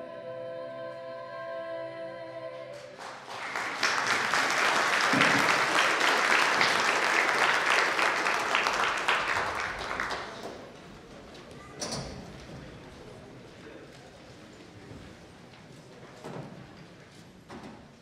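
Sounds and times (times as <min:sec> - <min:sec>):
group singing a cappella: 0:00.0 - 0:03.0
crowd applauding: 0:03.0 - 0:10.8.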